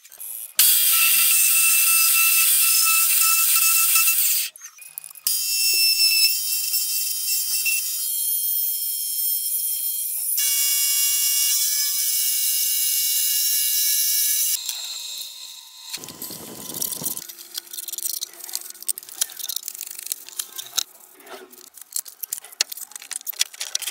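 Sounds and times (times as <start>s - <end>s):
milling cutter whine on steel: 10.0s - 17.2s.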